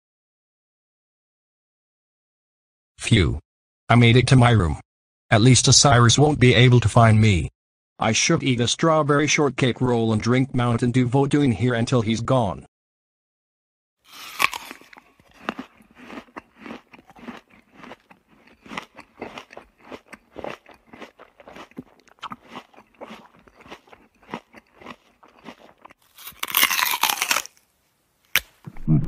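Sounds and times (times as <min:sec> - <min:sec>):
chewing and crunching: 0:14.1 - 0:27.7.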